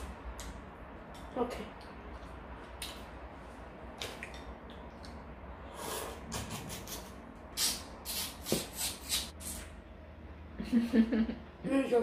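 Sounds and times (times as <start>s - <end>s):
wet mouth eating sounds: 3.9s - 9.7s
loud slurps: 5.7s - 9.7s.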